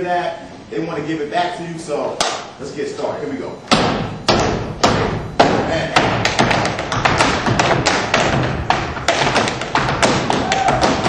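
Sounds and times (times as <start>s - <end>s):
tap shoes striking floor: 4.3s - 11.0s.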